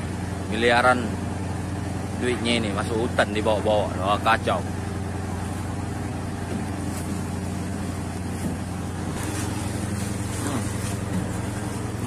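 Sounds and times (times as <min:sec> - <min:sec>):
ship engine humming: 0:00.0 - 0:12.0
branches scraping along ship: 0:03.9 - 0:12.0.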